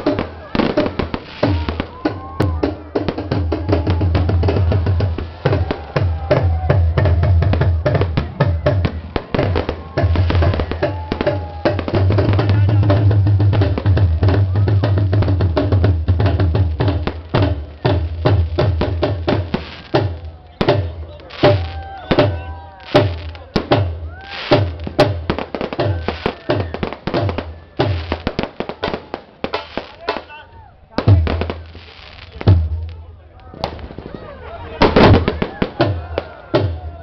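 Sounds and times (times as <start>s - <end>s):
firework bangs and crackling: 0.0s - 37.0s
voices: 0.0s - 37.0s
loud music with heavy drum beat: 1.4s - 22.3s.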